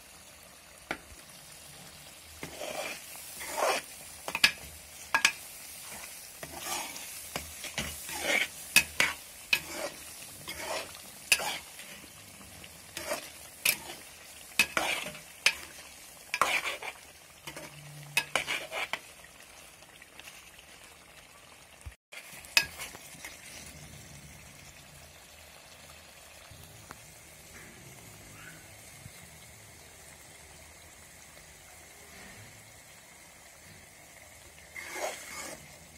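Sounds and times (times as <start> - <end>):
gravy sizzling: 0.0 - 35.9
metal ladle scraping a pot: 2.4 - 19.1, 22.5 - 23.9, 34.7 - 35.9.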